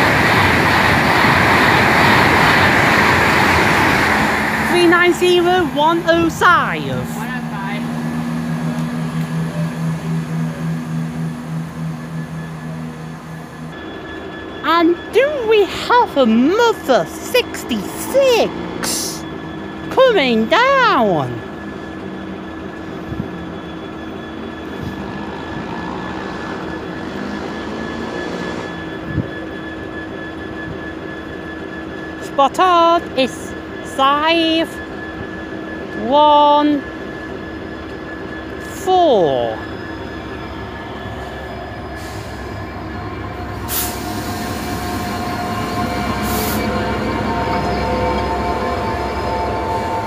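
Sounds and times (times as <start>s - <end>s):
diesel locomotive engine idling: 0.0s - 13.8s, 37.0s - 50.0s
train wheels on rails: 0.0s - 50.0s.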